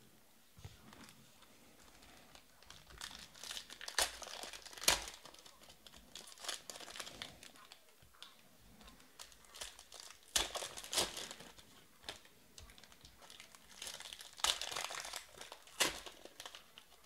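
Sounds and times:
foil wrappers crinkling: 0.9s - 17.0s.

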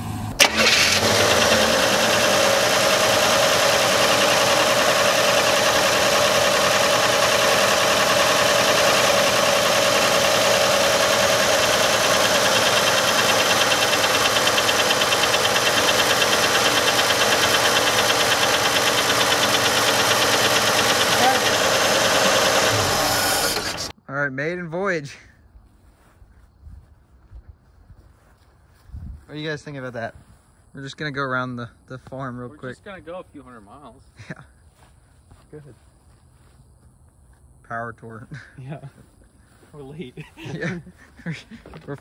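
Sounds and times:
car engine idling: 0.0s - 23.9s.

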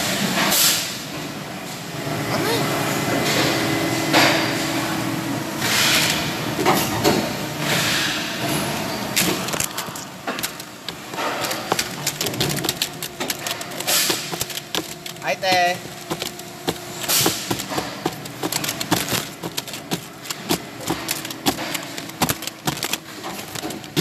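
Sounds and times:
factory machine noise: 0.0s - 24.0s
plastic trays clattering: 9.2s - 24.0s.

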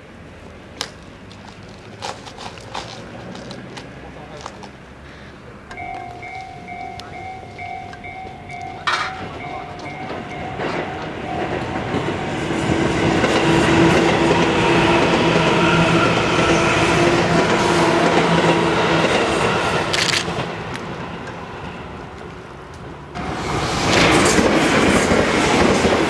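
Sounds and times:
train motors humming: 0.0s - 26.0s
rhythmic electronic ringing: 5.7s - 12.1s
train wheels clattering over rails: 5.7s - 21.4s, 22.8s - 26.0s.

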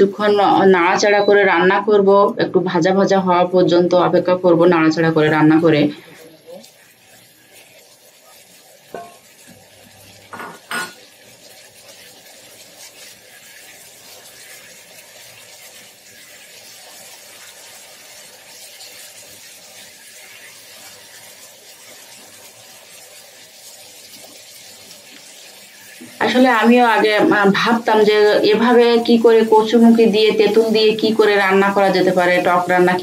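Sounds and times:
food sizzling in hot oil: 0.0s - 33.0s
spatula knocking against pan: 8.9s - 9.2s.

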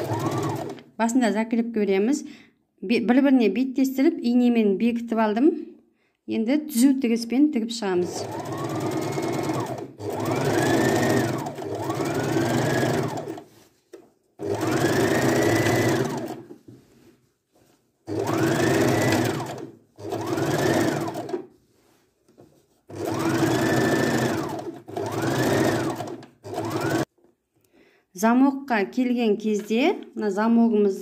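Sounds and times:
electric sewing machine stitching: 0.0s - 0.8s, 8.0s - 13.5s, 14.4s - 16.5s, 18.1s - 21.5s, 22.9s - 27.1s.

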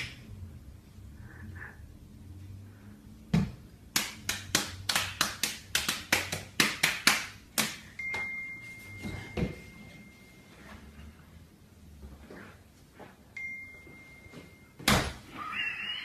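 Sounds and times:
thin steady high tone: 8.0s - 11.1s, 13.3s - 14.8s.

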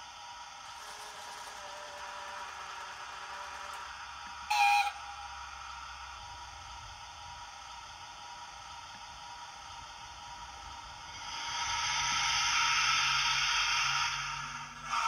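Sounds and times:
model locomotive toot: 1.5s - 5.8s.

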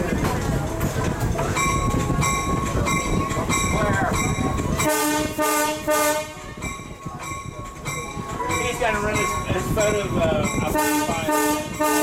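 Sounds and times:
locomotive rumble: 0.0s - 12.0s
locomotive bell ringing: 0.4s - 12.0s
locomotive horn chord: 4.8s - 6.5s, 10.7s - 12.0s.

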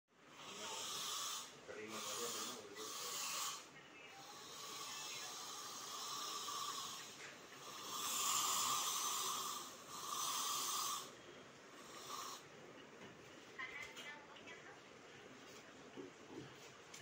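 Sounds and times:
steam wand hissing: 0.4s - 11.1s.

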